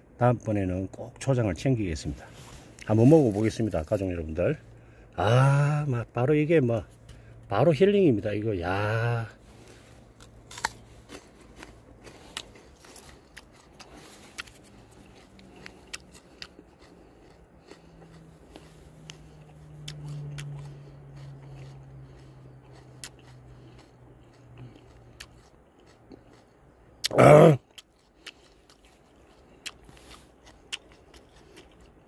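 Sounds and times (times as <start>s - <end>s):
crisp chewing crunches: 2.1s - 4.6s, 8.8s - 32.0s
man humming: 27.1s - 27.6s.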